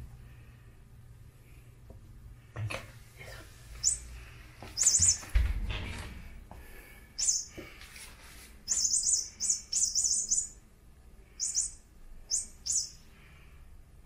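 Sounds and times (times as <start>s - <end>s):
electronic toy mouse squeaks: 4.8s - 5.2s, 7.2s - 7.5s, 8.7s - 10.6s, 11.4s - 13.0s.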